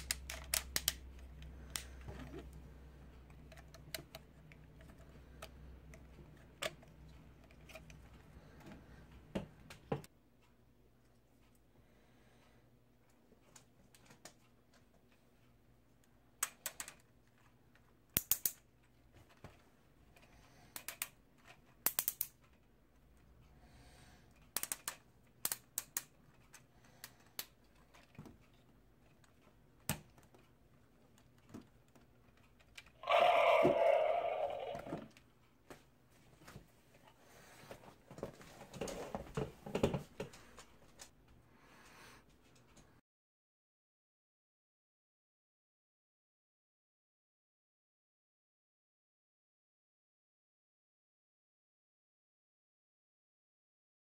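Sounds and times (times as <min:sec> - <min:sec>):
plastic toy clicks and taps: 0:18.2 - 0:18.6, 0:21.8 - 0:22.4, 0:24.5 - 0:26.1.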